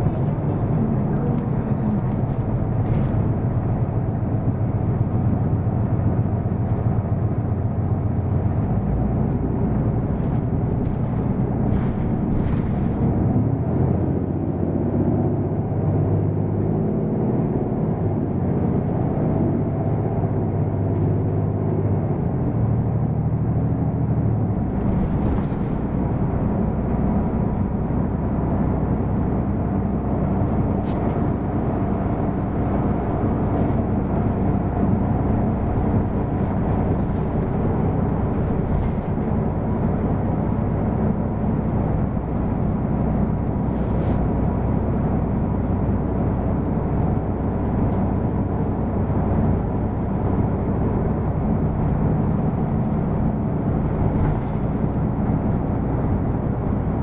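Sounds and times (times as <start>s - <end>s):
bus diesel engine rumbling: 0.0s - 57.0s.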